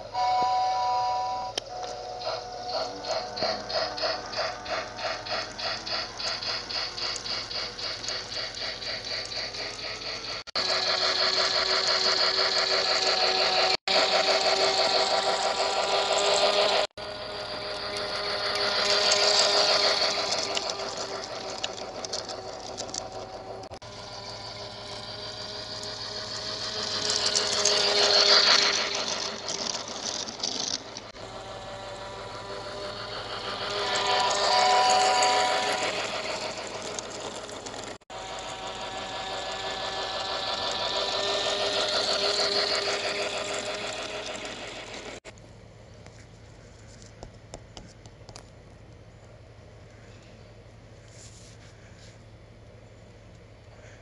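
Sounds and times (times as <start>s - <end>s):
model train motor whirring: 0.0s - 45.4s
fast wheel clatter: 2.2s - 45.3s.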